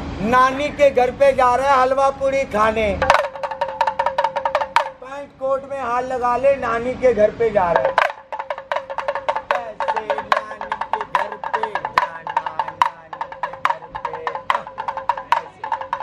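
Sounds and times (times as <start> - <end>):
pellet drum rattling: 3.0 - 5.0, 7.7 - 16.0.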